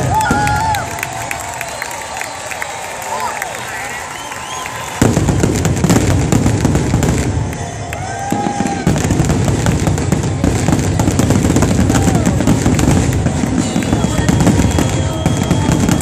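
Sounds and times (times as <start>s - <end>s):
fireworks bangs and crackles: 0.0s - 1.8s, 4.6s - 16.0s.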